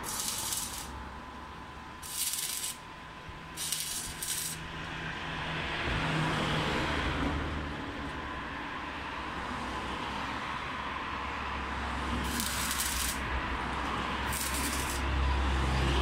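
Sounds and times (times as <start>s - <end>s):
short hissing bursts: 0.0s - 0.9s, 2.0s - 2.8s, 3.6s - 4.6s, 12.3s - 13.2s, 14.3s - 15.0s.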